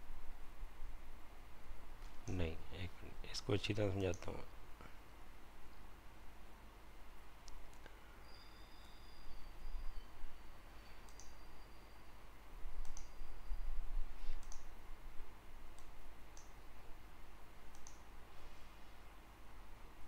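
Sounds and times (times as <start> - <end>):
computer mouse clicking: 11.0 - 11.4, 12.8 - 13.2, 14.3 - 14.7, 15.7 - 16.6, 17.7 - 18.1.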